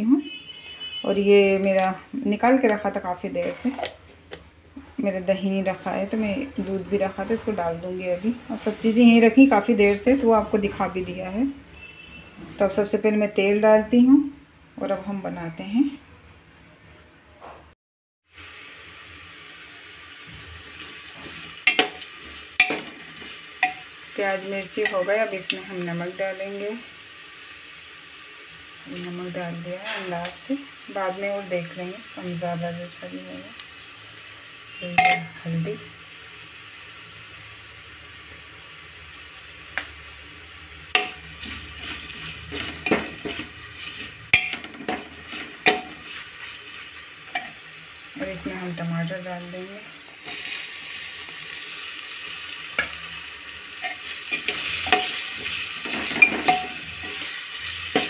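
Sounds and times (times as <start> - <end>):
onions sizzling in hot oil: 18.2 - 58.0
steel spoon clinking against pot: 23.6 - 23.8, 35.0 - 35.3, 44.3 - 44.7, 45.6 - 46.0, 47.3 - 47.6, 53.8 - 55.2, 56.1 - 57.2
spoon tapping pot: 35.0 - 35.3, 45.6 - 46.0
spoon scraping and clinking pot: 41.0 - 46.2, 53.8 - 58.0.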